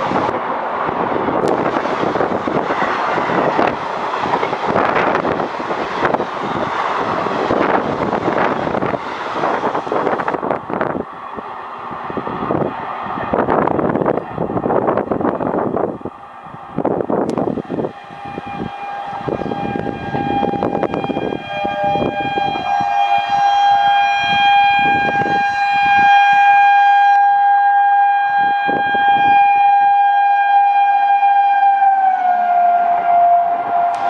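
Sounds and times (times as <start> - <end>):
train wheels clattering on rails: 1.4 - 10.4
train horn blast: 1.4 - 10.8, 16.0 - 34.0.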